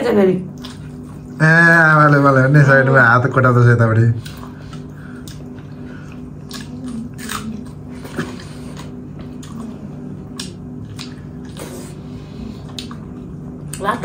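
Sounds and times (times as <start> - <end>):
chewing and biting food: 4.2 - 13.8.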